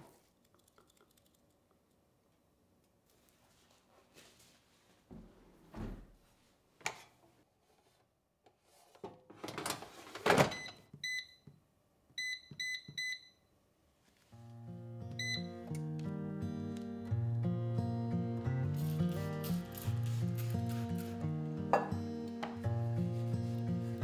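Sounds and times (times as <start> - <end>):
control panel beeps: 12.2 - 13.4, 15.2 - 15.5
soft background music: 14.4 - 24.0.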